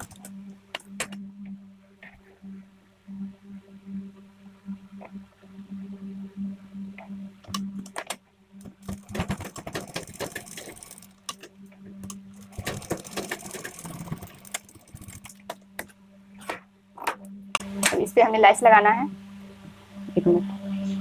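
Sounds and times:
sewing machine stitching: 0:08.8 - 0:11.5, 0:12.4 - 0:15.5.

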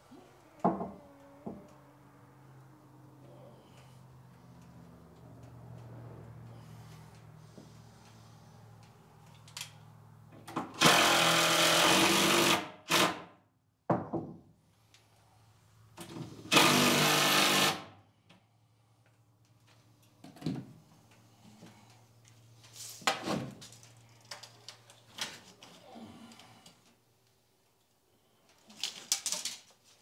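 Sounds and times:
cordless drill driving screws: 0:10.8 - 0:13.2, 0:16.4 - 0:17.8.

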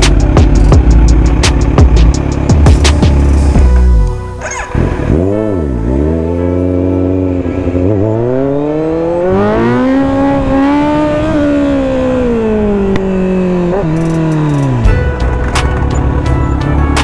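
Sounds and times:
motorcycle engine revving hard: 0:04.4 - 0:14.9.

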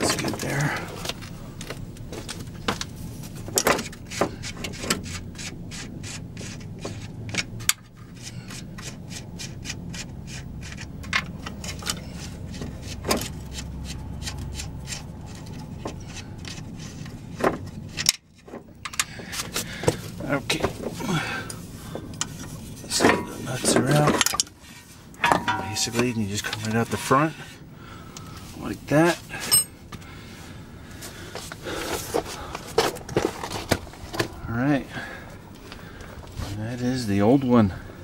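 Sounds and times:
rubbing and scraping: 0:03.0 - 0:27.7
metal knocks: 0:25.2 - 0:27.3.

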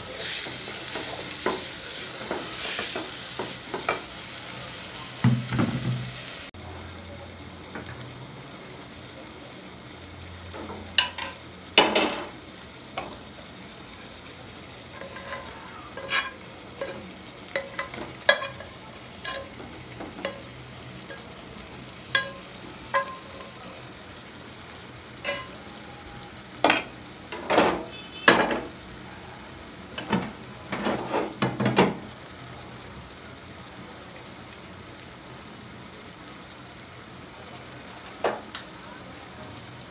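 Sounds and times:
food sizzling in pot: 0:00.0 - 0:39.9
metal spatula clinking and scraping pans: 0:00.2 - 0:04.1, 0:10.6 - 0:12.3, 0:14.9 - 0:21.3, 0:22.1 - 0:23.6, 0:25.2 - 0:25.6.

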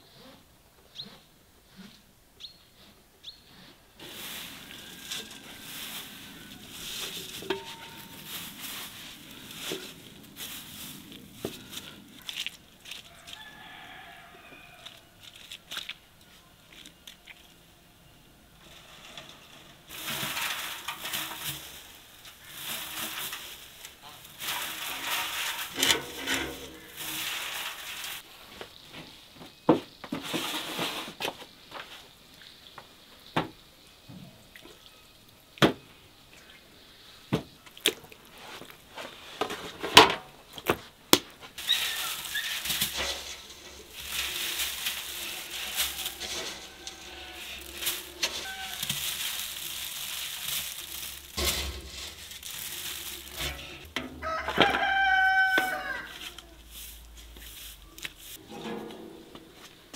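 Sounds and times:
wood shavings pouring into barrel: 0:04.0 - 0:14.3, 0:18.6 - 0:28.3, 0:41.6 - 0:58.4.

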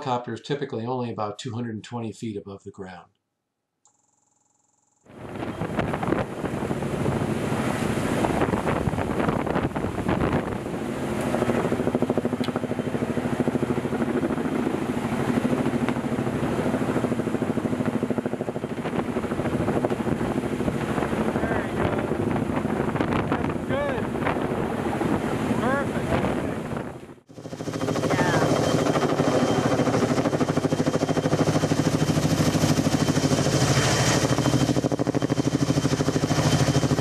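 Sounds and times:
helicopter rotor beating: 0:04.9 - 0:37.0
rotor wash blowing on microphone: 0:05.1 - 0:27.1.

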